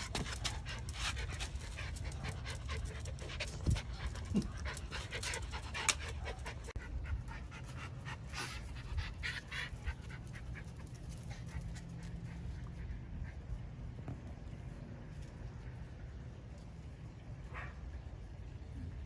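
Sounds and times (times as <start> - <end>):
dog panting: 0.0 - 13.7.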